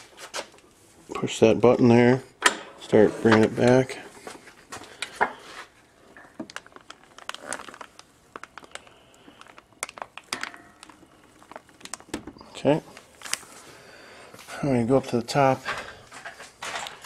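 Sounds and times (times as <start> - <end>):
plastic packaging crinkling: 4.8 - 13.8.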